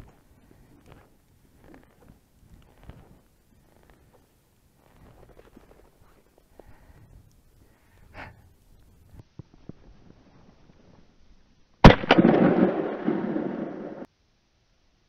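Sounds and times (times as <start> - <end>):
faint rustling: 0.0 - 11.2
shotgun shot: 11.8 - 14.1.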